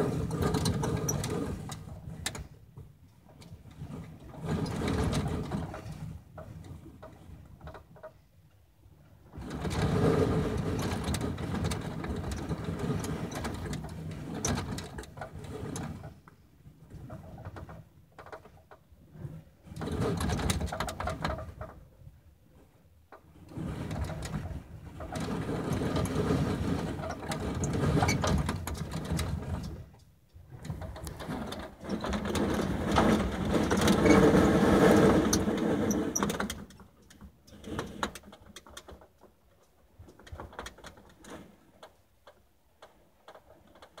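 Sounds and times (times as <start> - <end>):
strong wind gusts buffeting trailer: 0.0 - 2.4, 9.4 - 16.1, 23.5 - 36.6
clicks and rattles: 23.9 - 44.0.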